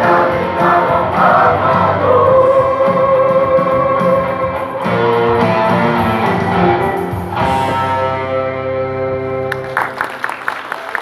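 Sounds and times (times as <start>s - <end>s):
mixed choir singing in harmony: 0.0s - 6.8s
instrumental accompaniment: 0.0s - 10.3s.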